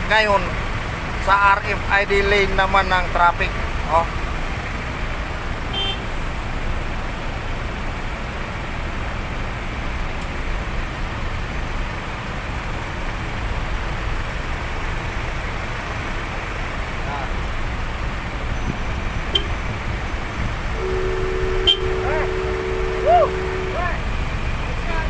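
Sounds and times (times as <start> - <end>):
road traffic rumble: 0.0 - 25.0
short beep: 20.8 - 23.9.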